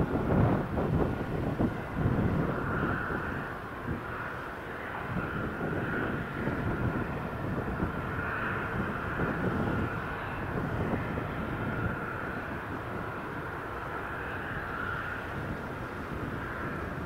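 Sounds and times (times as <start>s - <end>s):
jet engine rumble with whine: 0.0s - 17.0s.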